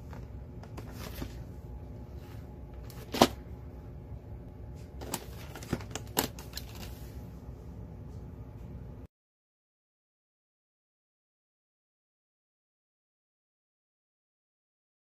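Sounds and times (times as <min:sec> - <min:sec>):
steady low hum: 0:00.0 - 0:09.1.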